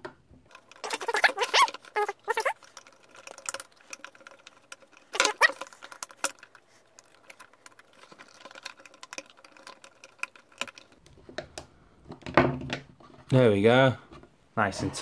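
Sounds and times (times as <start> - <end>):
screwdriver clicking and scraping: 0.5 - 11.0.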